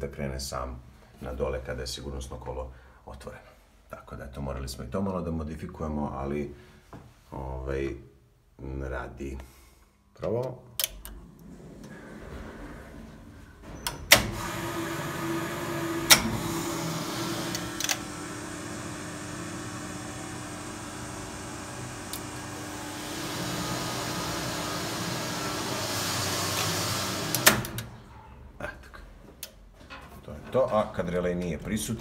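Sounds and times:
hydraulic machinery humming: 11.2s - 28.3s
relay and contactor clicks: 16.0s - 16.5s, 17.4s - 18.1s, 26.4s - 27.9s.

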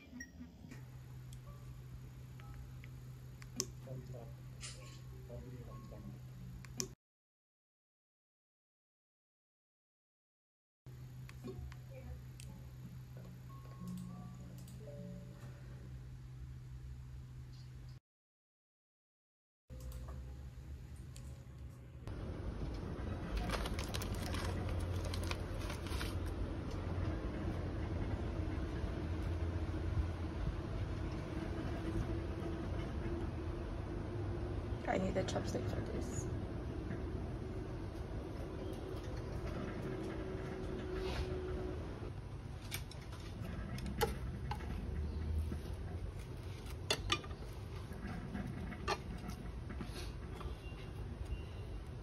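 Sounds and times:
low mechanical hum: 0.0s - 7.0s, 10.9s - 18.0s, 19.7s - 52.0s
low steady hum: 0.0s - 7.0s, 10.9s - 18.0s
plastic packet crinkling: 23.2s - 26.3s.

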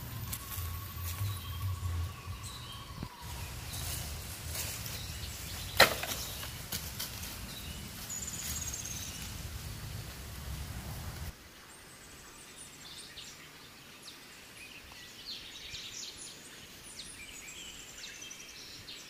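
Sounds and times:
handling and rustling noise: 3.2s - 10.2s.

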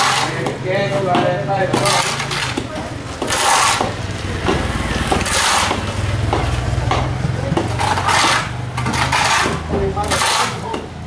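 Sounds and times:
hand tools knocking and scraping: 0.0s - 11.0s
vehicle engine idling: 2.8s - 10.0s.

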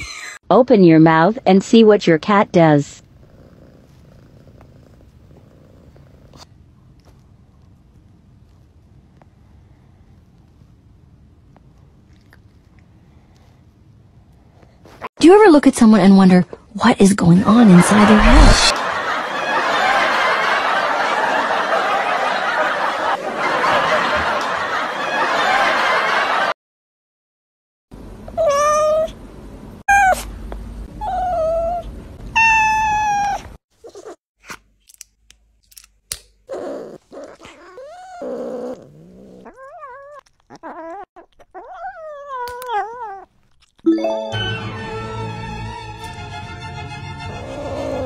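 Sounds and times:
people laughing: 17.7s - 26.5s
cat yowling and meowing: 28.4s - 29.1s, 29.9s - 30.3s, 31.0s - 34.2s, 36.5s - 43.3s, 47.3s - 48.0s.

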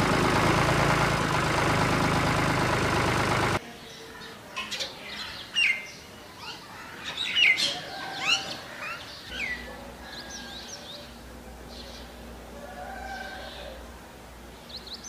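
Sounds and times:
small birds chirping: 3.5s - 12.4s, 13.2s - 15.0s.

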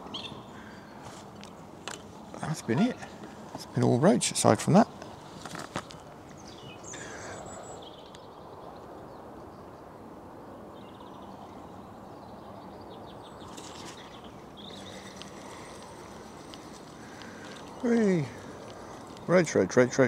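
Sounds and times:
low rushing outdoor background: 0.0s - 20.0s
small birds chirping: 0.0s - 20.0s.

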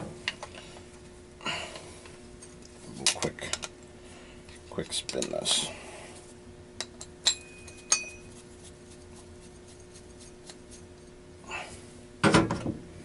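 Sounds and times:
metallic clinks: 7.2s - 8.3s.

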